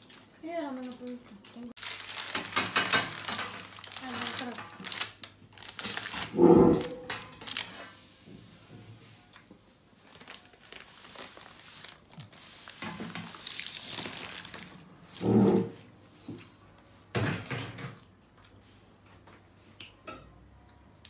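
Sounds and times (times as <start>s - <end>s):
baking paper crinkling: 0.0s - 8.0s, 9.2s - 15.8s
metal tray and rack clattering: 6.2s - 7.8s.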